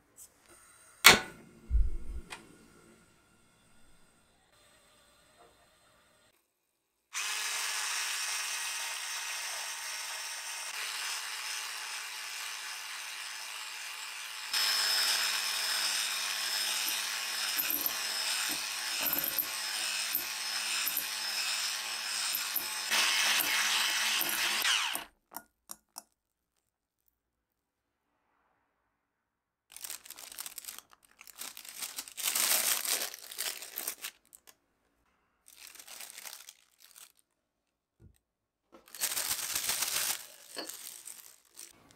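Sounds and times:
electric hand mixer whipping: 7.2 - 25.1.

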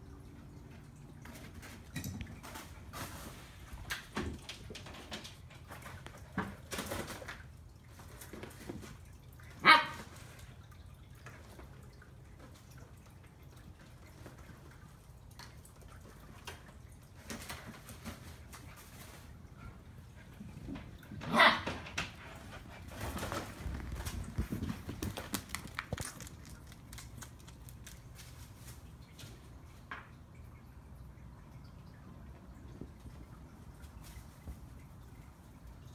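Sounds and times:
dog barking: 9.6 - 10.0, 21.2 - 21.8
dogs scuffling: 16.2 - 29.6.

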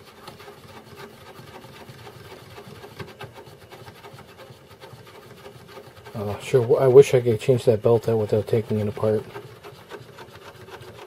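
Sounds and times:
plastic parts rubbing and scraping: 0.0 - 11.0.

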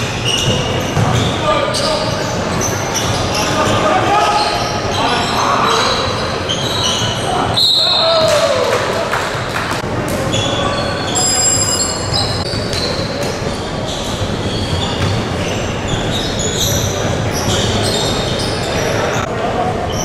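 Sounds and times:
sneaker squeaks on floor: 0.0 - 8.3, 10.2 - 19.3
indoor hall noise: 0.0 - 20.0
basketball bouncing: 0.4 - 1.4, 14.7 - 15.4.

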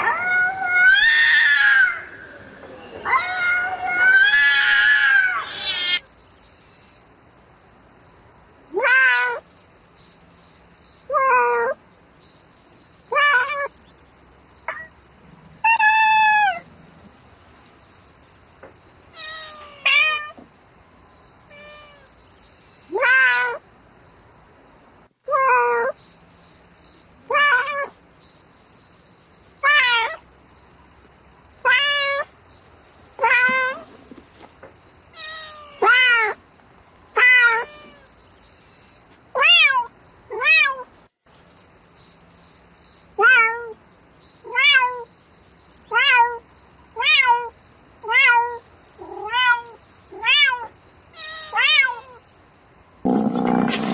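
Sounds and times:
cat meowing: 0.0 - 6.0, 8.8 - 9.4, 15.6 - 16.7, 19.2 - 20.4, 21.5 - 22.1, 22.9 - 23.6, 27.3 - 28.0, 29.6 - 30.2, 31.6 - 32.3, 35.2 - 36.4, 37.2 - 38.1, 39.4 - 40.9, 43.2 - 43.8, 44.4 - 45.1, 45.9 - 46.4, 47.0 - 52.2.

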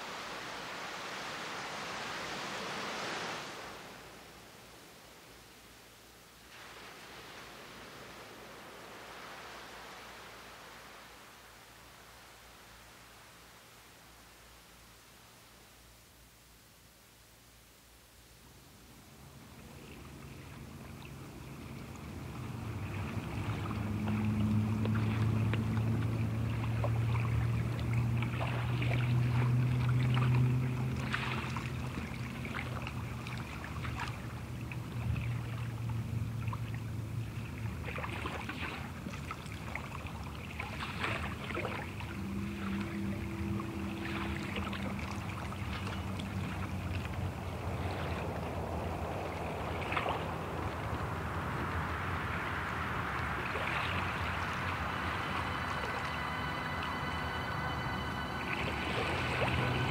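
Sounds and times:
ocean water lapping and splashing: 0.0 - 14.6, 18.8 - 59.9
low steady drone: 18.6 - 38.0, 39.0 - 59.9.

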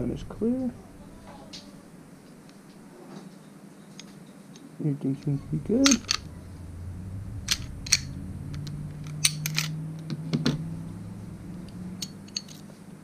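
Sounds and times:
steady low hum: 0.0 - 3.0, 4.8 - 13.0
pistol metallic clicks and scrapes: 9.0 - 9.8.

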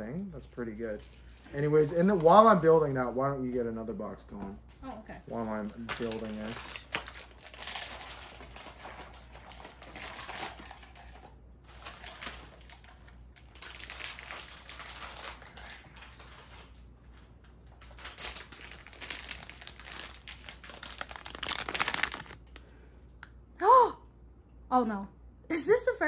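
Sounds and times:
foil bag and cardboard crinkling: 5.2 - 22.7.

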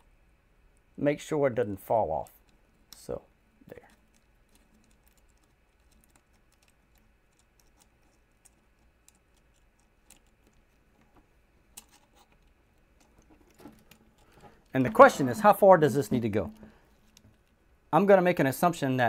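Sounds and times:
small metal parts clicking: 3.7 - 10.8.

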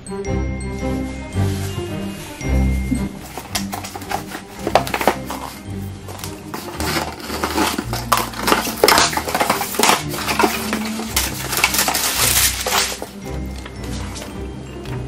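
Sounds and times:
packing paper crackling: 3.2 - 14.4
scissors slitting packing tape: 6.6 - 13.2.

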